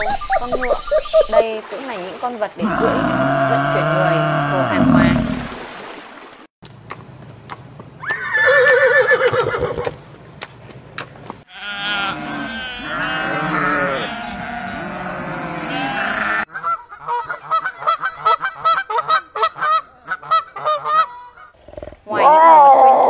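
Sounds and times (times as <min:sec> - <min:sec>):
farm animals bleating: 0:11.5 - 0:16.5
geese honking: 0:11.5 - 0:21.6.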